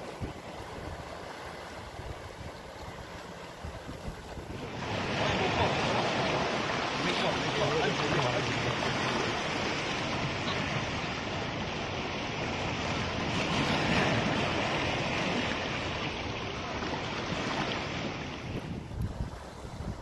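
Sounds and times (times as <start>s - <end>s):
waves breaking: 0.0s - 20.0s.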